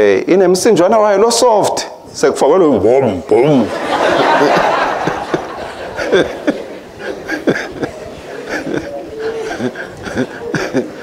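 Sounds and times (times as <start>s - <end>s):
murmured voices: 3.3s - 11.0s
crowd laughing: 3.6s - 11.0s.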